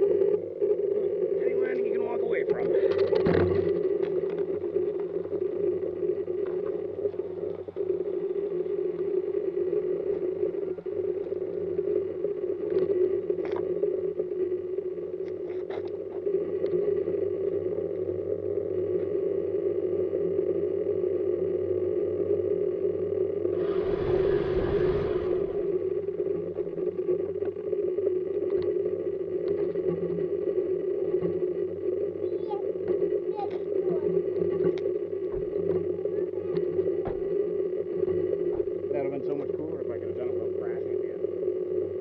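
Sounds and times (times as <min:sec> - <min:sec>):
motor hum: 0:00.0 - 0:42.0
rush of noise: 0:00.0 - 0:42.0.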